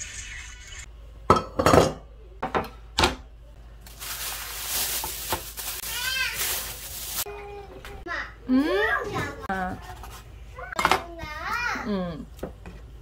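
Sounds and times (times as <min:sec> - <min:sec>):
kitchenware clattering: 0:01.3 - 0:03.2
plastic bag crinkling: 0:03.8 - 0:07.3.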